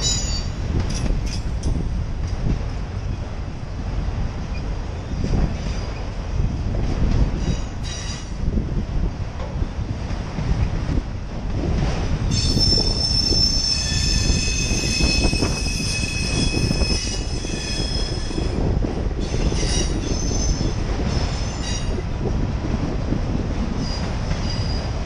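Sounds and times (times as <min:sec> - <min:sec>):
train wheels squealing: 0:00.0 - 0:01.5, 0:04.5 - 0:06.1, 0:07.4 - 0:08.4, 0:12.3 - 0:18.6, 0:19.2 - 0:22.0, 0:23.8 - 0:25.0
freight cars rumbling: 0:00.0 - 0:25.0.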